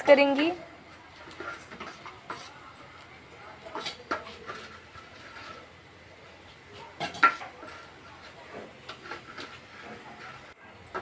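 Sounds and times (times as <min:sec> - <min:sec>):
spoon scraping steel plate: 0:01.2 - 0:02.7, 0:03.7 - 0:05.8, 0:07.0 - 0:11.0.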